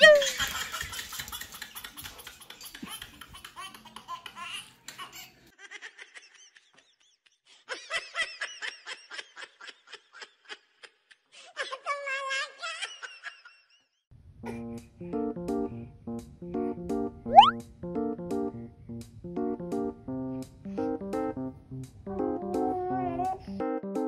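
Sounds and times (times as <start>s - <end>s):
baby laughing and giggling: 0.0s - 6.2s
music: 14.4s - 24.0s.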